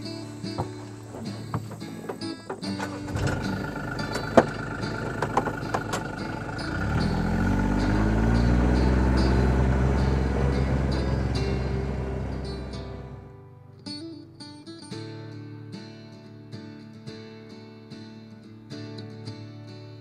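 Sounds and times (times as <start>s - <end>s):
utility vehicle engine running: 0.0s - 13.3s
sharp clicks and knocks: 0.5s - 6.3s.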